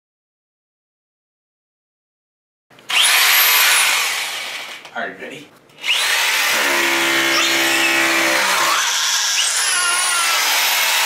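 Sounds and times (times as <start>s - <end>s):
electric drill drilling into wall: 2.9s - 4.9s, 5.8s - 11.0s.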